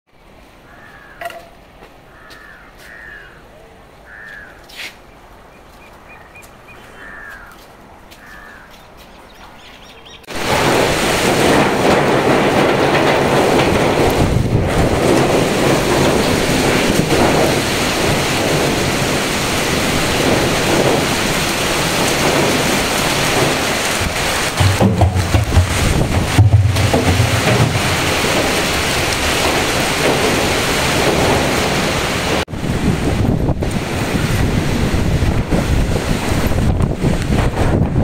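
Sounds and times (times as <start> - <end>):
rain: 0.1 - 3.2, 10.2 - 38.0
loud wind: 5.2 - 38.0
bird chirps: 5.5 - 7.6, 8.3 - 10.3.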